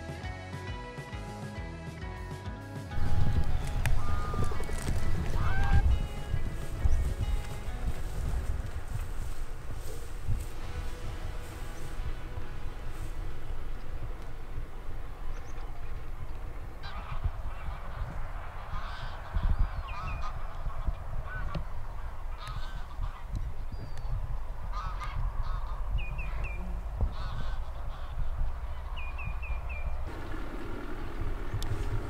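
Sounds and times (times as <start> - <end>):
geese honking: 2.8 - 32.0
steady low rumble: 2.9 - 32.0.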